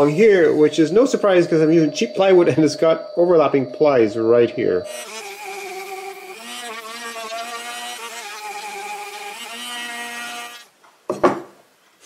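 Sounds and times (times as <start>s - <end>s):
router motor whining: 4.9s - 10.7s.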